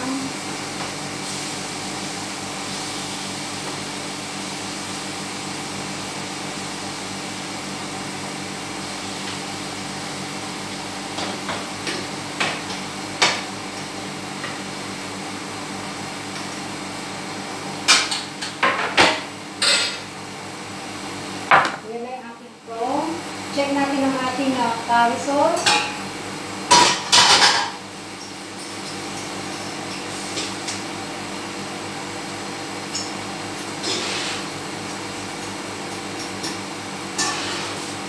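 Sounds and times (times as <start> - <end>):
extractor fan humming: 19.3 - 38.0.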